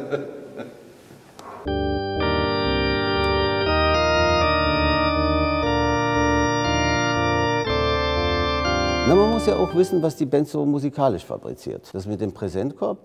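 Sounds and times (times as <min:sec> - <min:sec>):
pipe organ chords: 0:01.6 - 0:10.3.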